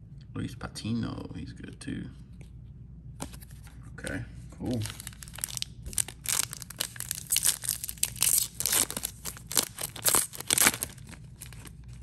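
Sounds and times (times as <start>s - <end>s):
foil wrapper crinkling and tearing: 4.7s - 12.0s.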